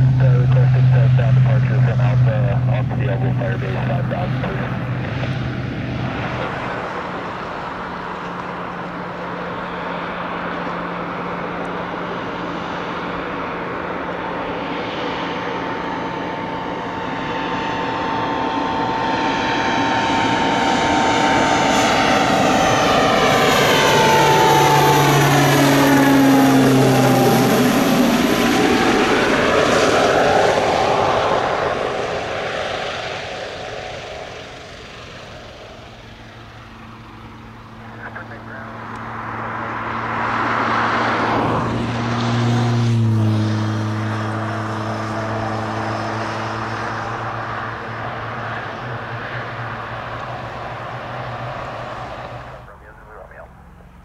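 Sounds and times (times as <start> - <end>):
turboprop plane flying past: 0.0 - 54.0.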